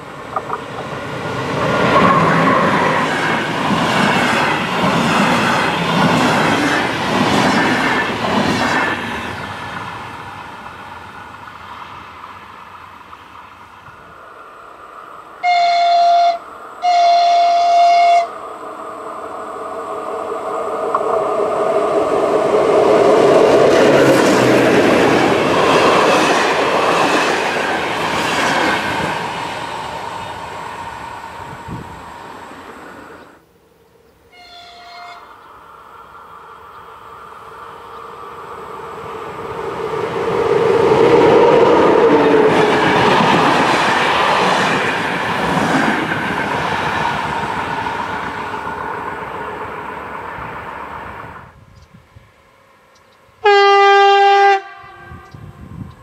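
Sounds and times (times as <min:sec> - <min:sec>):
passenger train passing: 0:00.0 - 0:56.0
train horn: 0:15.4 - 0:18.4, 0:34.3 - 0:35.4, 0:53.4 - 0:55.6.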